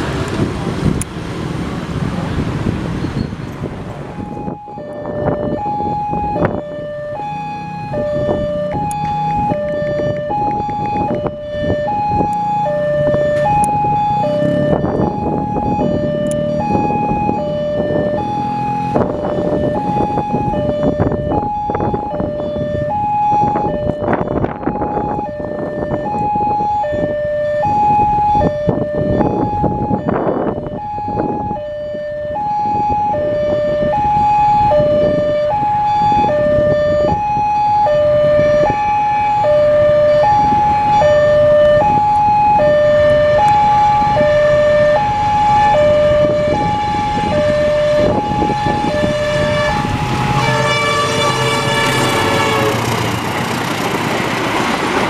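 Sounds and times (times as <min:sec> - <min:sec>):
level crossing alarm two tones: 0:11.8 - 0:52.8
train passing: 0:46.9 - 0:55.0
locomotive horn blast: 0:47.5 - 0:53.6.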